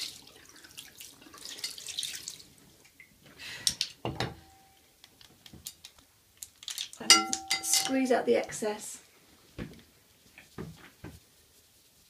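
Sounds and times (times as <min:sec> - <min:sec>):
tap water splashing into sink: 0:00.0 - 0:02.4
sponge rubbing on soap: 0:10.0 - 0:12.0.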